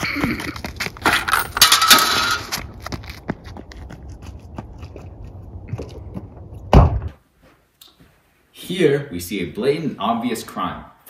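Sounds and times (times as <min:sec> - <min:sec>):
light footsteps on pavement: 0:00.0 - 0:01.4, 0:02.4 - 0:06.8
clatter at metal table: 0:01.1 - 0:02.5.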